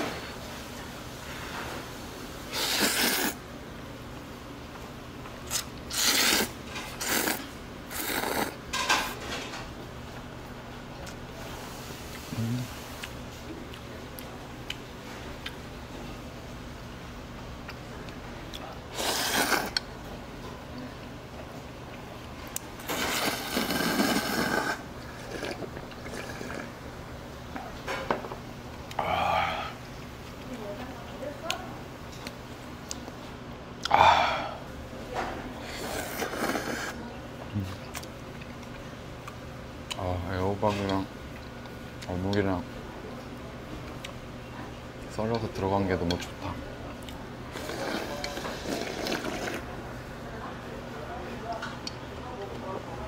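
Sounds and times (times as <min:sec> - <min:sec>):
eating sounds: 0:02.5 - 0:03.4, 0:05.4 - 0:08.6, 0:17.6 - 0:19.9, 0:20.7 - 0:26.8, 0:35.6 - 0:40.1, 0:46.0 - 0:49.7
slurping or chewing: 0:02.5 - 0:03.4, 0:05.4 - 0:08.6, 0:18.9 - 0:19.9, 0:22.8 - 0:26.8, 0:35.6 - 0:37.0, 0:47.0 - 0:49.7.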